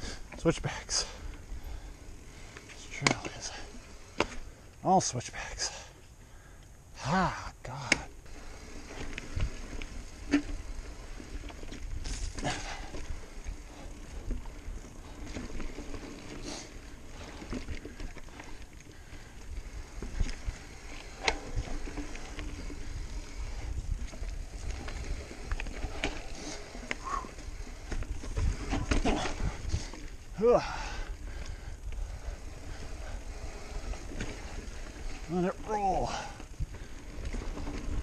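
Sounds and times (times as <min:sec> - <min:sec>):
bike tyres rolling over rocks: 0:00.0 - 0:38.0
bike clattering over bumps: 0:07.9 - 0:38.0.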